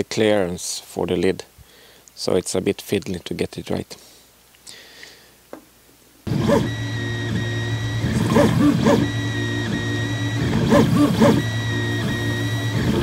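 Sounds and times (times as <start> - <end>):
stepper motors whining and chirping: 6.3 - 13.0.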